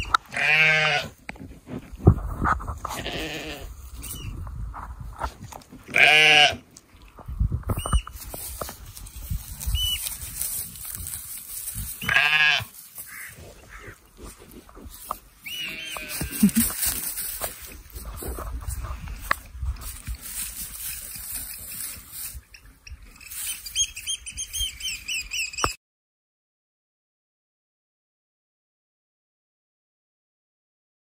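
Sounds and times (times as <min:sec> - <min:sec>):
lambs bleating: 0:00.3 - 0:01.2, 0:02.9 - 0:03.7, 0:05.9 - 0:06.6, 0:12.0 - 0:14.0, 0:15.4 - 0:16.8.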